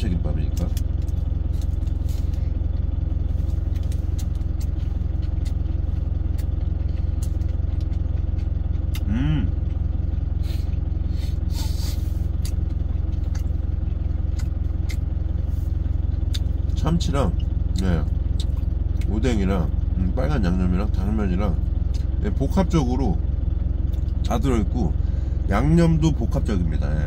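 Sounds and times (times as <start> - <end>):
truck engine idling: 0.0 - 27.0
chewing clicks: 3.7 - 9.1, 12.4 - 15.1, 17.7 - 19.1
person humming: 9.0 - 9.6.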